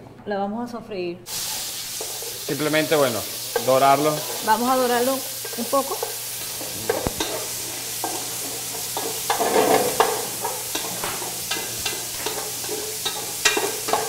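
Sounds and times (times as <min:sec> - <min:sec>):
meat sizzling in oil: 0:01.3 - 0:14.0
wooden spoon scraping pan: 0:05.4 - 0:14.0.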